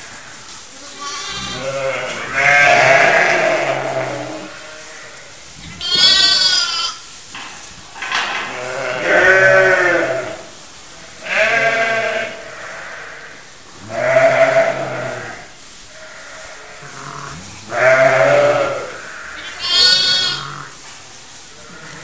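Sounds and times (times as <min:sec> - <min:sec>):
sheep bleating: 0:00.8 - 0:07.1, 0:11.2 - 0:13.0, 0:13.9 - 0:15.4, 0:16.0 - 0:20.8.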